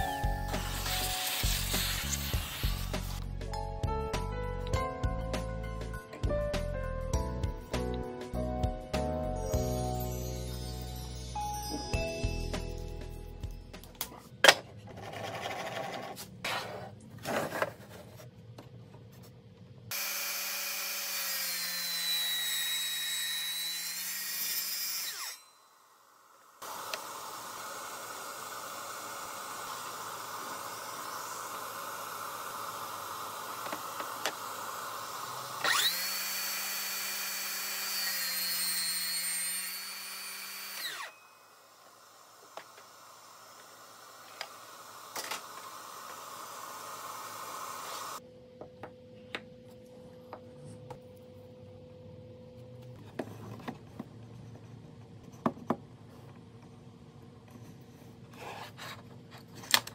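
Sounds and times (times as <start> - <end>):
table saw cutting wood: 0.0 - 3.3, 19.9 - 48.2
steady hiss: 0.6 - 3.1.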